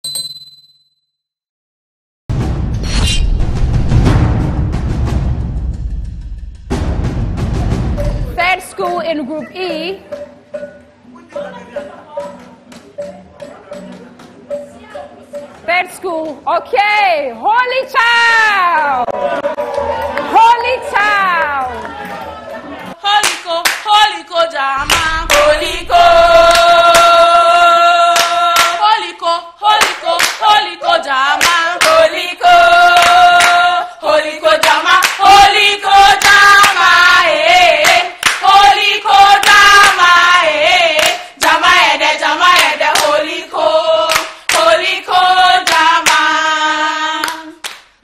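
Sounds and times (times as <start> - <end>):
women singing together: 20.4 - 47.7
hand claps: 23.2 - 24.0, 24.8 - 25.4, 28.2 - 28.8, 29.8 - 30.6, 31.4 - 32.0, 33.0 - 33.6, 34.6 - 35.3, 36.2 - 37.0, 37.8 - 38.6, 39.4 - 40.1, 41.0 - 41.6, 42.5 - 43.2, 44.1 - 44.8, 45.6 - 46.3, 47.2 - 48.0.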